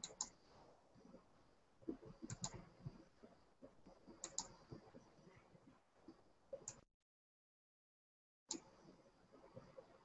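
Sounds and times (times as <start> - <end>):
computer mouse clicks: 0.0 - 0.4, 1.9 - 2.7, 4.1 - 4.8, 8.5 - 8.7.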